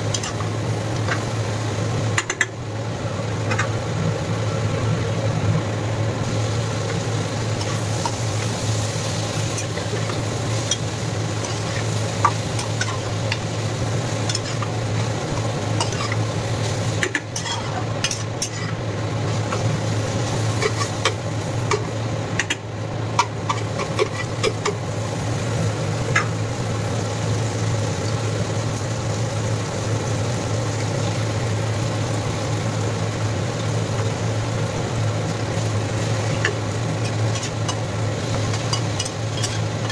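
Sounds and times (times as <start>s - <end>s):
gourd sizzling in a pan: 0.0s - 39.9s
induction cooktop hum: 0.0s - 39.9s
spatula scraping a pan: 23.5s - 24.7s.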